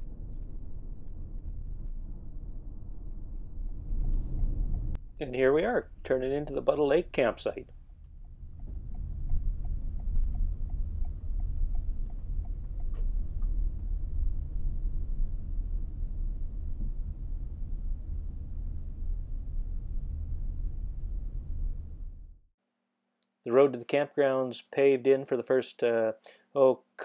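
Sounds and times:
car engine and tyres rumble: 0.0s - 5.1s, 7.7s - 15.5s
turn signal ticking: 8.0s - 13.0s.

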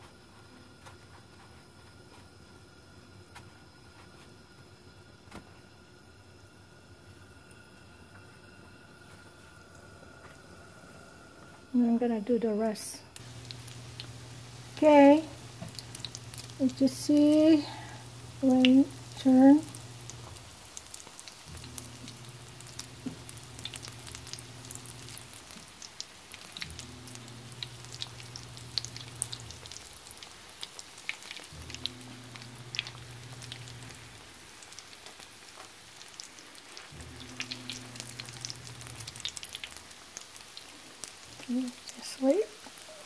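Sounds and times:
low background hum: 0.0s - 43.0s
oil crackling and sizzling: 12.8s - 43.0s.

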